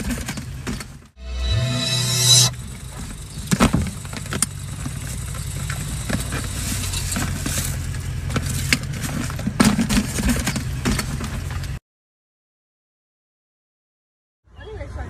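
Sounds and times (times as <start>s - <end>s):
car cabin rumble: 2.6s - 11.6s.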